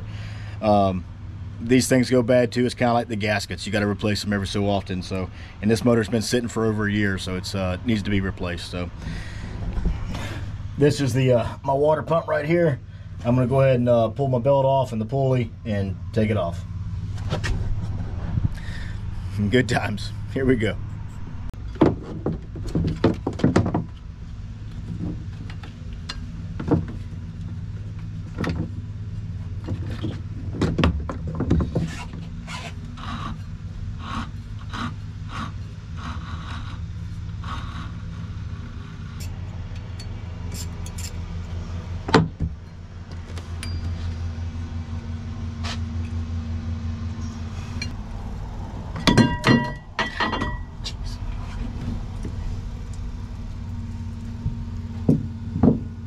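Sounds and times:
steady low hum: 0:00.0 - 0:22.8, 0:23.6 - 0:56.0
wrench metallic clinks: 0:43.6 - 0:44.1
loud ringing metal clanks: 0:43.6 - 0:44.5, 0:48.9 - 0:50.8.

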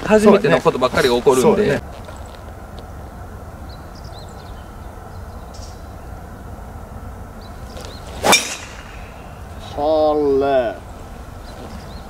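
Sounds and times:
golf club striking ball: 0:07.7 - 0:09.6
golf club swing swish: 0:07.7 - 0:09.8.

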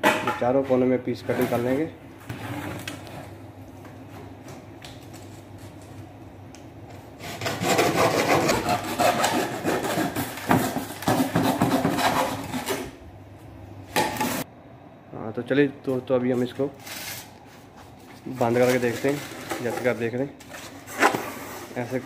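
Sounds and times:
blade rasping through foam panel: 0:07.2 - 0:12.8.

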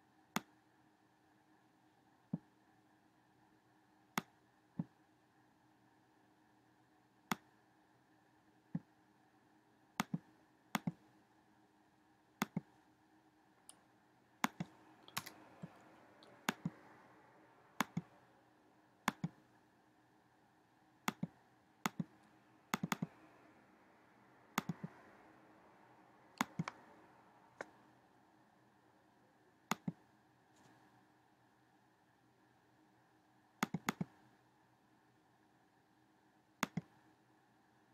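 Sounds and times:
computer mouse clicking: 0:10.0 - 0:11.0, 0:12.4 - 0:12.7, 0:14.4 - 0:17.0, 0:17.8 - 0:18.2, 0:19.0 - 0:19.4, 0:21.0 - 0:23.3, 0:24.6 - 0:25.0, 0:26.4 - 0:26.8, 0:29.7 - 0:30.0, 0:33.6 - 0:34.3, 0:36.6 - 0:37.0.

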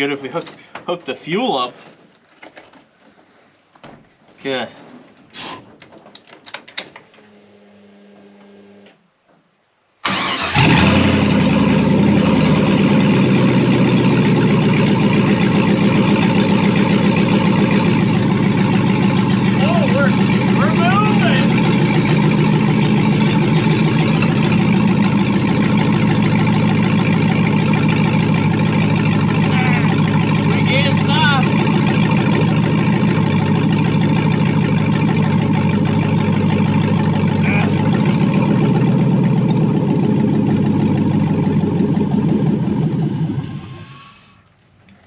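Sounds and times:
engine running at low revs: 0:10.6 - 0:44.4.

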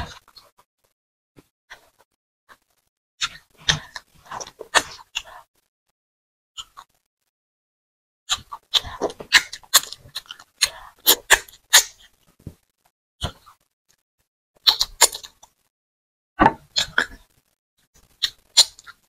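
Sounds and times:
sticky chewing clicks: 0:14.6 - 0:15.6.

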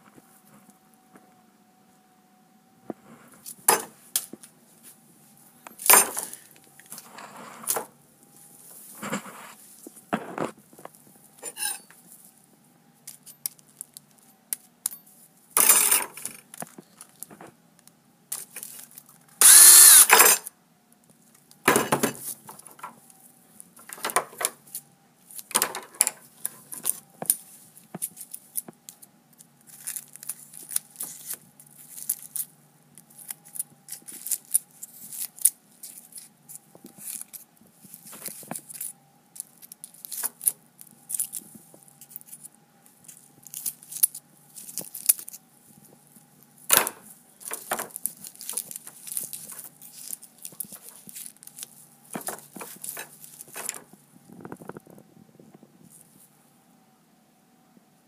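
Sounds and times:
cordless drill whirring: 0:19.4 - 0:20.3
foil crinkling and tearing: 0:29.6 - 0:36.3, 0:47.4 - 0:53.9.

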